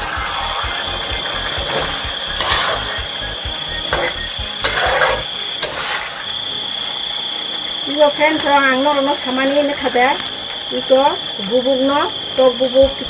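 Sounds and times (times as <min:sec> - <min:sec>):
steady high whine: 0:00.0 - 0:13.0
spatula scraping a pot: 0:01.7 - 0:03.0, 0:03.9 - 0:06.3.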